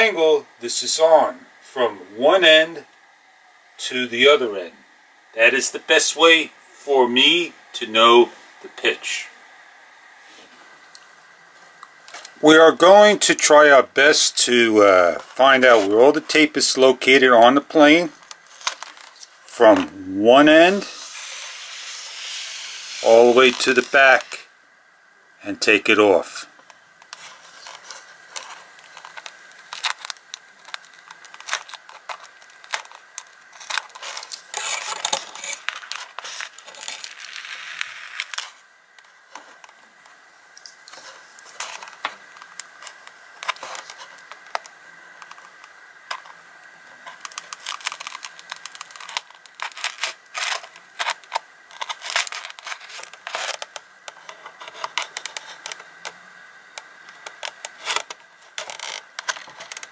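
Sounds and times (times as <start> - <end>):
rustling tearing tape: 18.1 - 19.8, 20.7 - 24.4, 26.6 - 39.9, 40.5 - 59.9
tape peeling and scraping: 18.2 - 19.8, 20.6 - 24.4, 26.6 - 59.9.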